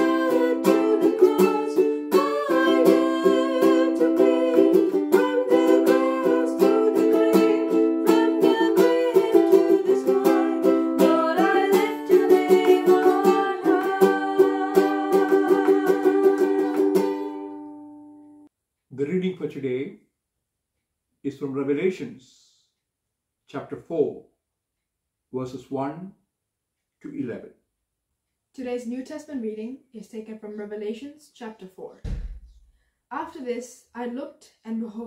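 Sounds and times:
women singing a hymn: 0.0s - 17.7s
strummed ukulele: 0.0s - 18.2s.

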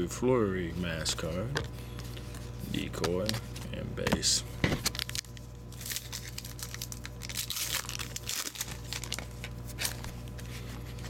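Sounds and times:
low electrical hum: 0.0s - 11.0s
card pack wrapper crinkling and tearing: 4.8s - 11.0s.

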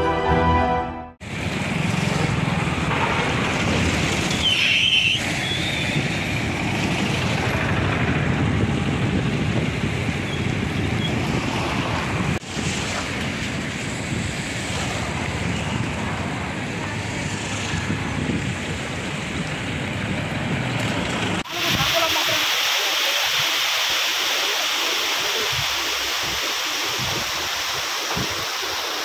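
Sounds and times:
theme music: 0.0s - 1.2s
wind buffeting the microphone: 5.6s - 22.0s, 25.4s - 28.7s.

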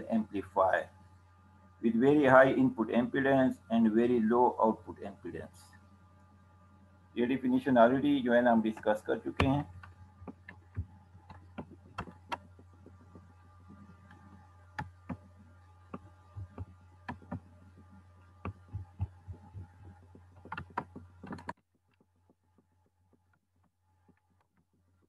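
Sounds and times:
low electrical hum: 0.0s - 25.0s
computer mouse clicks: 15.9s - 17.5s, 18.4s - 21.6s.

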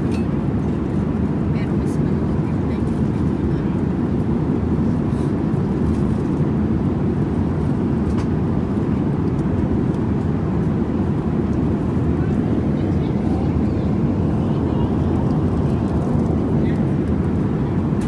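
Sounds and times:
airliner cabin rumble in flight: 0.0s - 18.0s.

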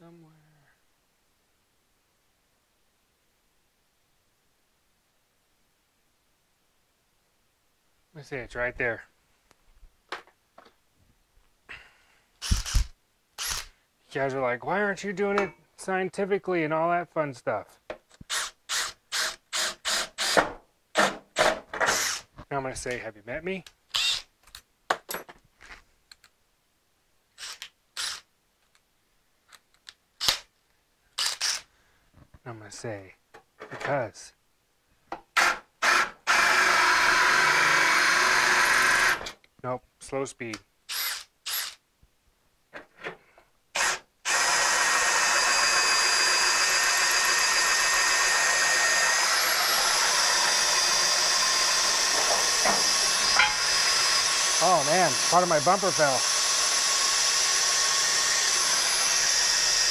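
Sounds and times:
cordless drill whining: 12.4s - 13.7s, 18.2s - 20.5s, 21.8s - 22.3s, 23.9s - 24.3s, 27.4s - 28.3s, 31.2s - 31.7s, 35.4s - 39.4s, 40.9s - 41.8s, 43.8s - 59.9s
tool scraping strokes: 49.5s - 56.2s.

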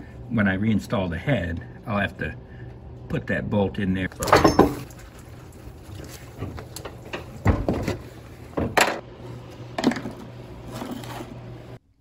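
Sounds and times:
steady low hum: 0.0s - 12.0s
metal parts and tools clattering: 4.2s - 4.8s.

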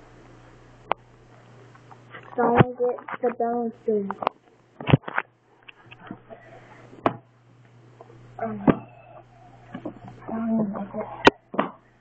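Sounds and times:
low hum: 5.6s - 12.0s.

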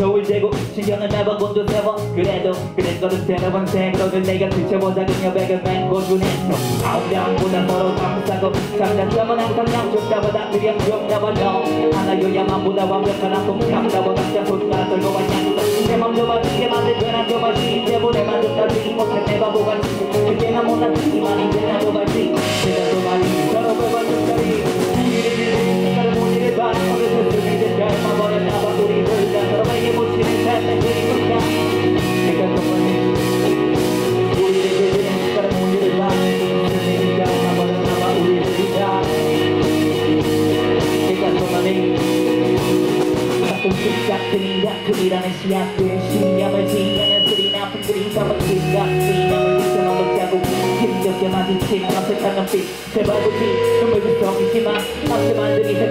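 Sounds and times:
live rock band playing: 0.0s - 55.9s
person rapping into microphone: 0.0s - 55.9s.

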